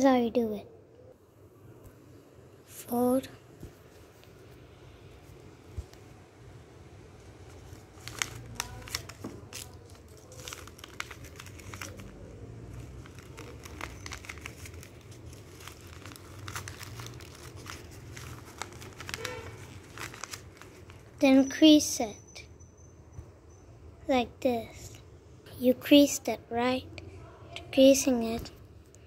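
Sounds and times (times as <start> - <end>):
paper crinkling and crackling: 7.1 - 21.4.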